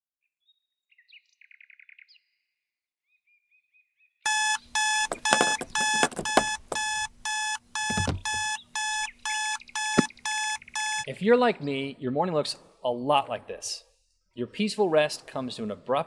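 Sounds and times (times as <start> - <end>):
alarm clock beeping: 4.3 - 11.1
low thud: 7.9 - 8.5.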